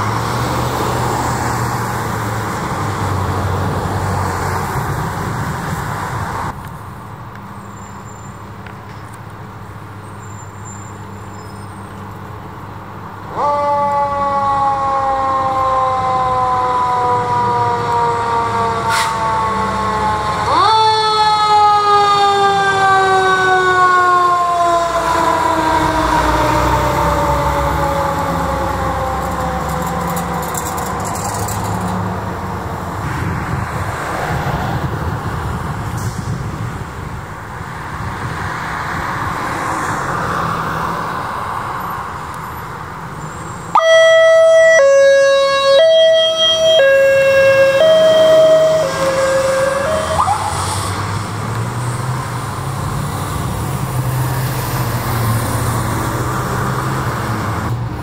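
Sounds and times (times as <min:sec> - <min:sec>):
fire truck siren wail: 0:00.0 - 0:06.6, 0:13.2 - 0:36.3, 0:43.7 - 0:57.8
truck engine and road noise: 0:00.0 - 0:58.0
two-tone siren: 0:13.3 - 0:31.8, 0:43.7 - 0:50.9.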